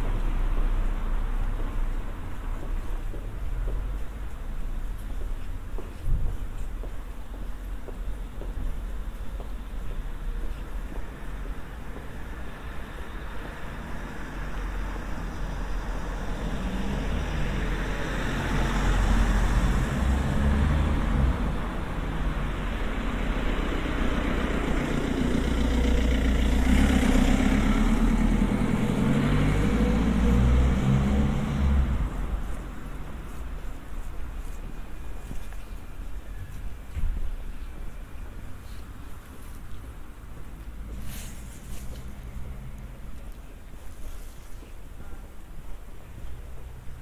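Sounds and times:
cars driving past: 0:10.0 - 0:44.3.

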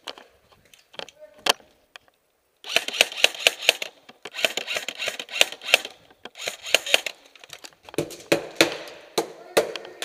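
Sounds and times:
airsoft guns firing: 0:02.7 - 0:07.2, 0:08.0 - 0:09.2.

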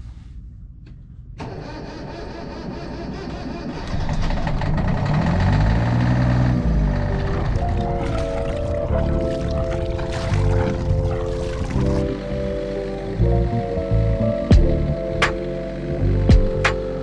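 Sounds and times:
boat engine running: 0:04.4 - 0:17.0
steady musical tones: 0:05.6 - 0:17.0.

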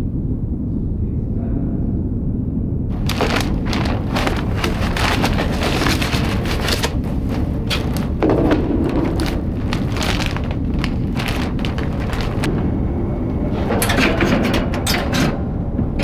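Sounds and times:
low rumble: 0:00.0 - 0:16.0
plastic crackling and rustling: 0:02.9 - 0:12.5.

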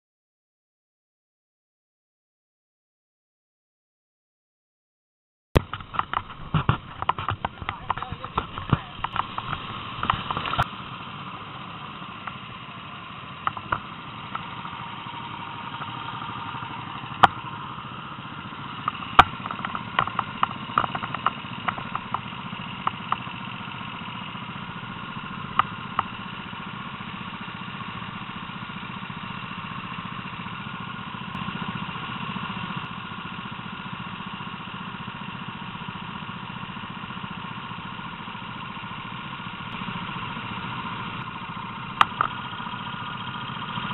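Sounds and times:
sharp clicks and knocks: 0:05.6 - 0:10.7, 0:13.4 - 0:14.5, 0:17.2 - 0:17.4, 0:18.8 - 0:23.3, 0:42.0 - 0:42.6
go-kart engines idling: 0:05.6 - 0:43.9.

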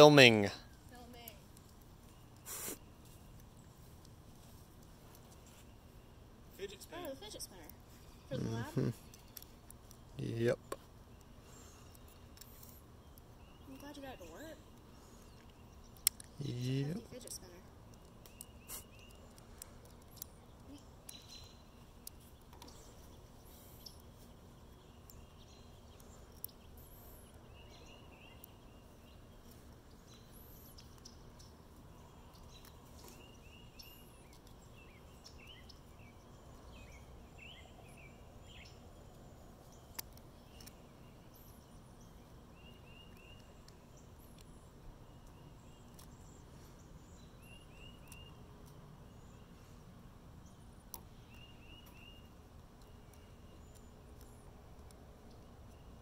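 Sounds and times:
birds chirping: 0:00.0 - 0:56.0
light clicks of plastic parts: 0:14.7 - 0:16.4, 0:17.2 - 0:21.2, 0:39.8 - 0:40.8, 0:50.8 - 0:55.8.

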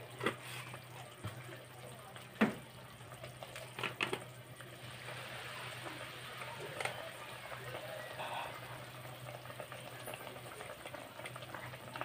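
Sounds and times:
vegetables sizzling in oil: 0:03.6 - 0:12.0.

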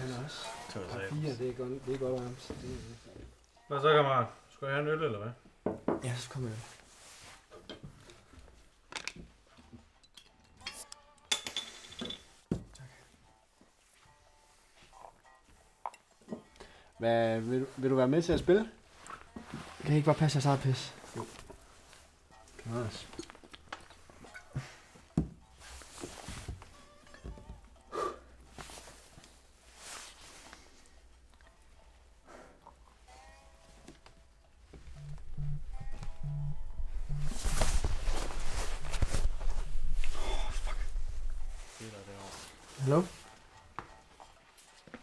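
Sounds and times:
glass bottle clinking: 0:10.0 - 0:12.3.

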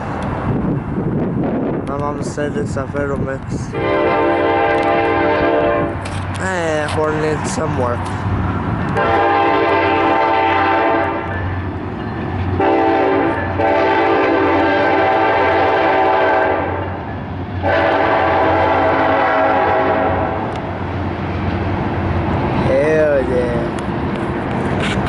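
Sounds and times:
diesel locomotive rumble: 0:00.0 - 0:25.0
locomotive air horn blasts: 0:03.7 - 0:06.0, 0:09.0 - 0:11.3, 0:12.6 - 0:16.8, 0:17.6 - 0:20.5.

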